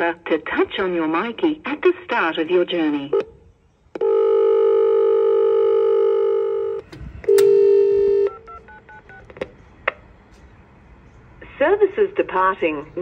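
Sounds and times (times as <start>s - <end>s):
recorded train announcement: 0.0s - 3.3s, 11.4s - 13.0s
dial tone: 4.0s - 8.5s
intercom clicks: 6.8s - 9.5s
short dialing beeps: 7.3s - 9.2s.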